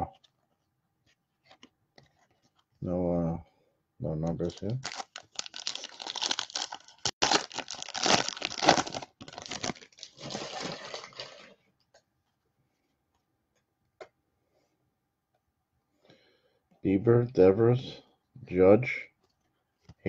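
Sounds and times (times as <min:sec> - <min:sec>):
wrapper tearing and crinkling: 0:04.6 - 0:11.4.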